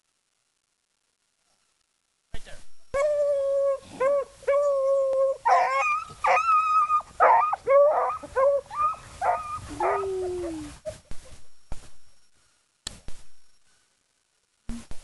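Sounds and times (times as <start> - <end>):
hounds baying: 4.0 - 11.0.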